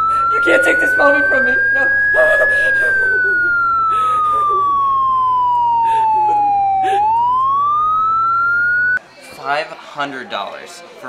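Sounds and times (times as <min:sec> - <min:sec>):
siren wailing: 0:00.0 - 0:09.0
man sobbing and crying: 0:01.7 - 0:07.4.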